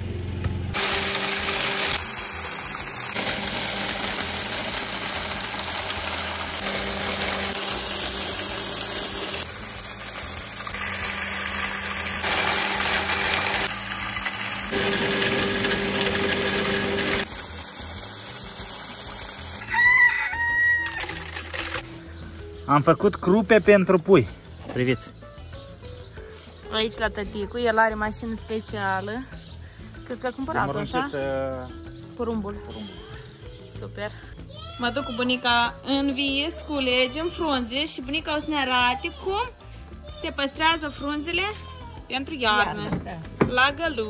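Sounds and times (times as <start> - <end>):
low motor hum: 0.0 - 19.6
grain mill grinding: 0.6 - 22.2
rooster crowing: 19.6 - 21.3.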